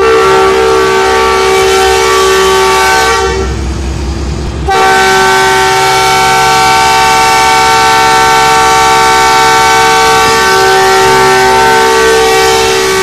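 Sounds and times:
locomotive air horn blast: 0:00.0 - 0:03.7, 0:04.6 - 0:13.0.

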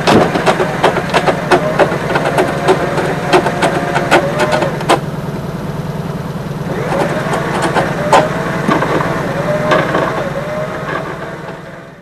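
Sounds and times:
sharp metal knocks: 0:00.0 - 0:05.0
truck engine running: 0:00.0 - 0:12.0
wavering whine: 0:00.0 - 0:12.0.

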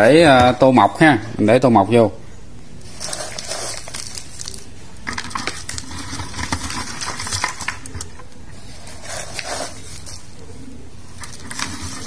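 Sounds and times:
wood chips rattling into plastic jar: 0:02.9 - 0:08.1.

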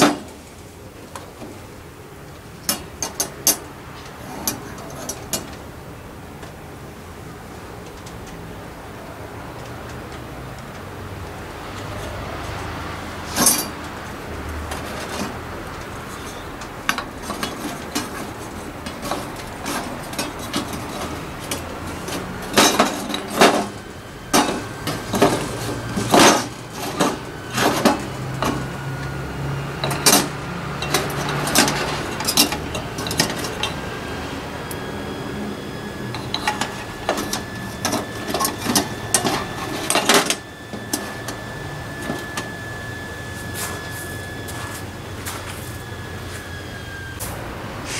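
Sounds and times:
metal camping gear clinking: 0:13.2 - 0:13.8, 0:14.8 - 0:28.7, 0:29.8 - 0:33.9, 0:36.1 - 0:42.5.

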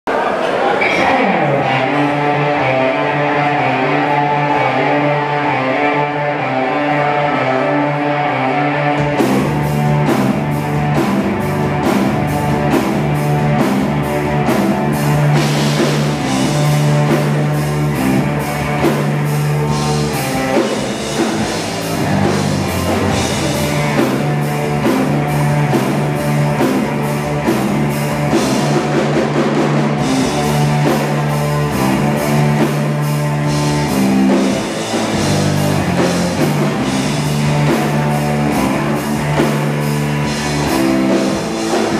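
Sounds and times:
distorted electric guitars: 0:00.8 - 0:41.9
drum kit beat: 0:08.9 - 0:41.9.

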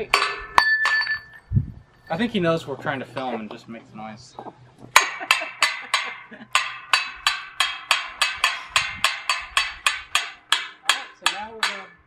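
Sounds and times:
hammer clanking on metal pole: 0:00.0 - 0:01.3, 0:04.9 - 0:12.0.

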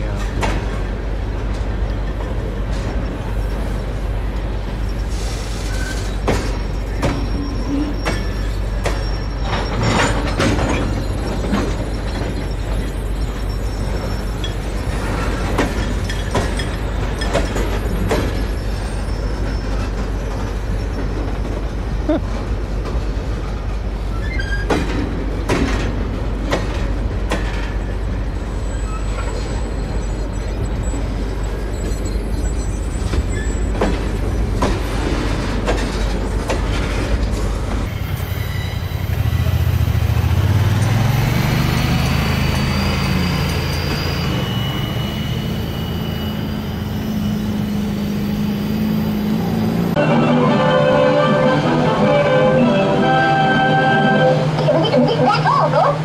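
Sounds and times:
freight train rumbling past: 0:32.5 - 0:56.0.

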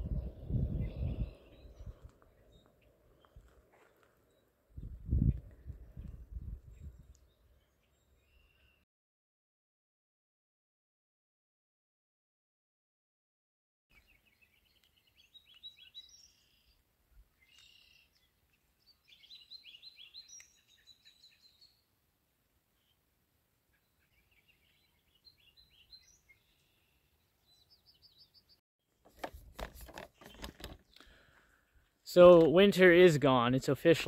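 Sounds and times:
songbirds chirping and trilling: 0:00.0 - 0:08.8, 0:13.9 - 0:34.0
handheld camera rustling and knocks: 0:29.0 - 0:31.0.

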